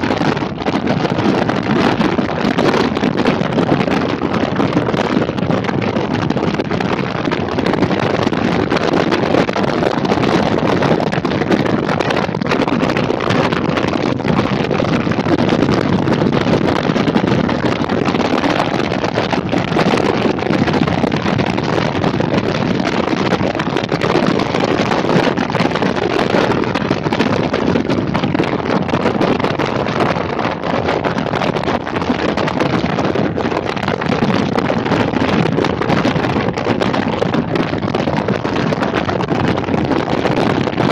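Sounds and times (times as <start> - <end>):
motorcycle and tyre noise: 0.0 - 40.9
wind rushing over microphone: 0.0 - 40.9.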